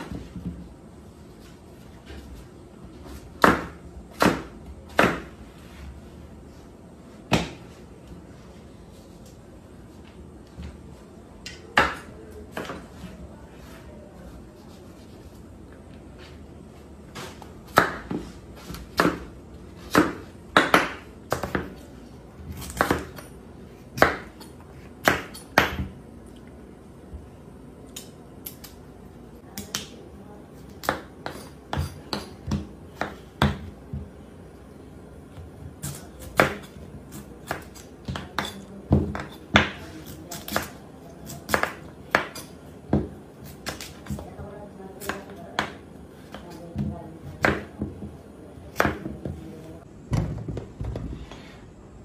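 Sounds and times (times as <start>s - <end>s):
knife chopping on cutting board: 3.4s - 5.3s, 19.9s - 21.8s, 24.0s - 24.4s, 35.8s - 44.2s, 48.7s - 49.4s.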